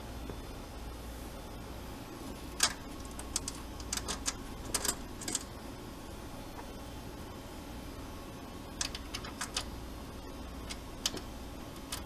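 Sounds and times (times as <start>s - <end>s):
steady low hum: 0.0s - 12.0s
cable connectors clicking: 2.6s - 5.5s, 8.8s - 9.7s.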